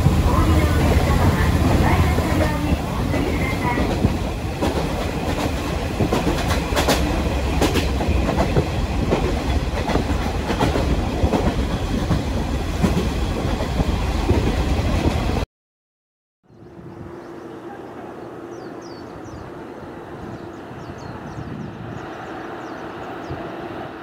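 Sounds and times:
train cabin rumble: 0.0s - 15.4s.

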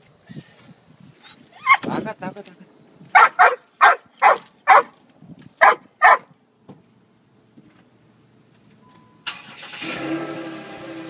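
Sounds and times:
dog barking: 3.1s - 4.9s, 5.6s - 6.3s
car engine starting and running: 8.8s - 11.0s.

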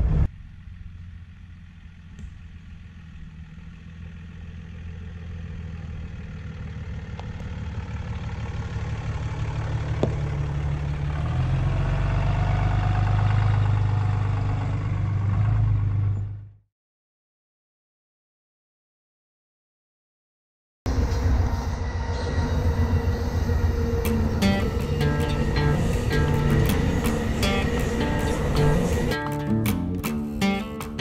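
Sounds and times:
pickup truck engine running: 0.0s - 16.5s, 20.9s - 31.0s.

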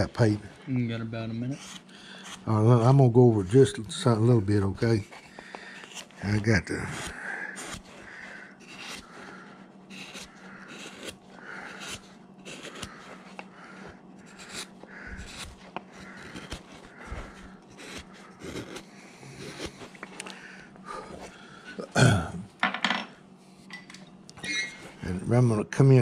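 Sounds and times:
carving gouge scraping through wood: 1.4s - 19.9s.

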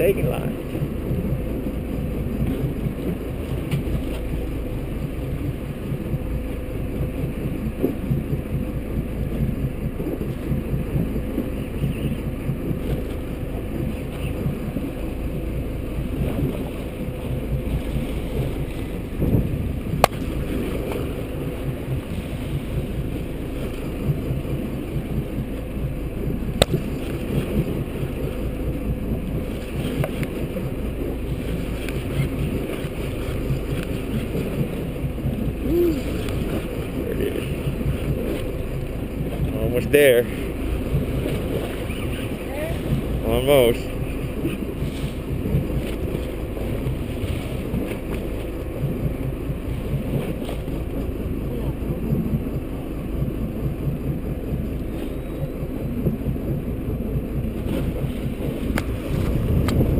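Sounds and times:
outboard motor rumbling: 0.0s - 59.9s
wind buffeting microphone: 0.0s - 59.9s.

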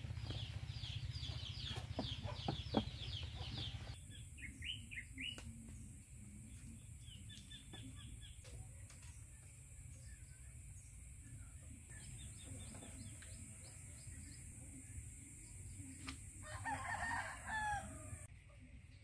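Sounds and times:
small birds chirping: 0.0s - 16.3s
rooster crowing: 16.4s - 18.3s.

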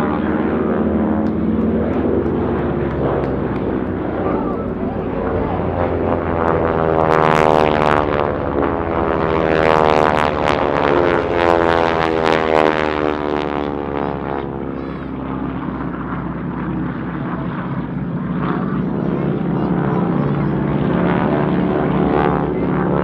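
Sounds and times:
propeller aircraft engine drone: 0.0s - 23.0s.

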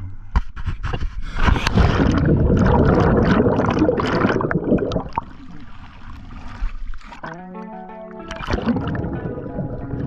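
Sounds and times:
bubbles and churning water underwater: 1.2s - 7.4s, 8.3s - 10.0s.

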